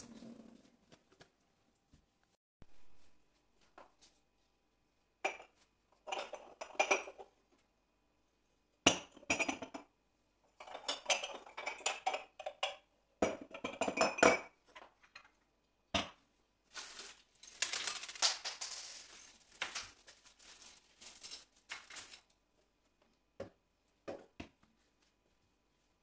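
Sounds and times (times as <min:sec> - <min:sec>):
ceramic mugs clinking: 0:05.2 - 0:07.2, 0:08.9 - 0:09.9, 0:10.6 - 0:14.9.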